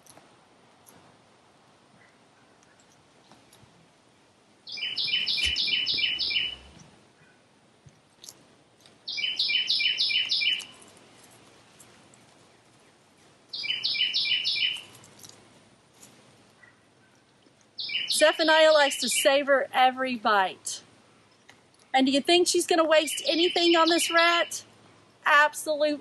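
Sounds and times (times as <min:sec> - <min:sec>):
songbird singing: 0:04.6 - 0:07.4, 0:09.1 - 0:10.8, 0:13.5 - 0:15.3, 0:16.5 - 0:20.0, 0:21.2 - 0:24.7.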